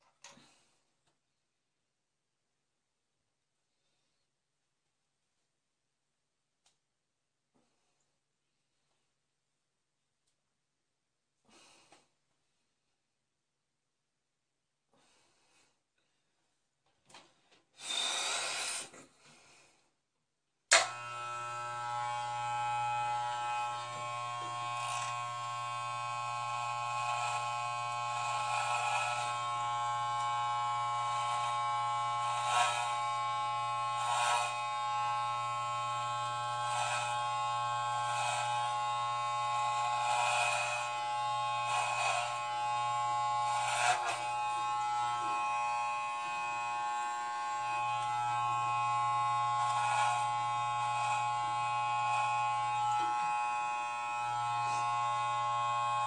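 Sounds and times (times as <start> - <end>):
hair clippers buzzing: 20.7 - 56.0.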